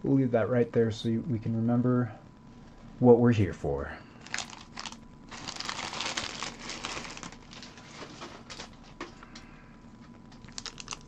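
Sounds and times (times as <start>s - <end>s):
foil wrapper crinkling: 4.2s - 9.3s, 10.3s - 11.0s.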